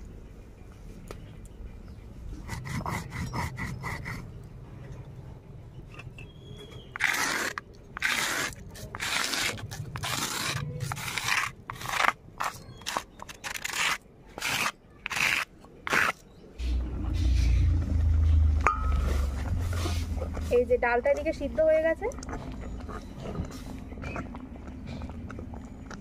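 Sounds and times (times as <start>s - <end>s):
stone grinding scraping strokes: 7.0s - 17.8s
low steady rumble: 16.6s - 26.0s.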